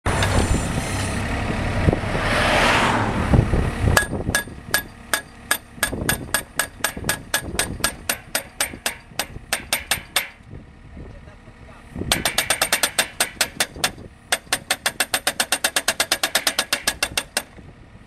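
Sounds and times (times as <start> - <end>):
traffic noise: 0.0 - 18.0
vehicle passing: 0.1 - 4.7
hammer striking steel post: 4.0 - 10.4, 12.1 - 17.5.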